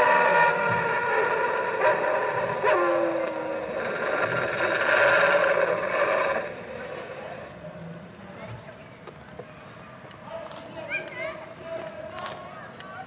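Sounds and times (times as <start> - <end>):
wolf-like howling: 0.0 - 7.3.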